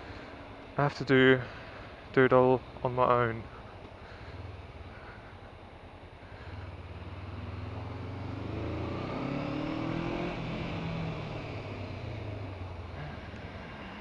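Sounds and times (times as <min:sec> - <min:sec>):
road noise: 0:00.0 - 0:14.0
motorcycle engine under throttle: 0:06.4 - 0:14.0.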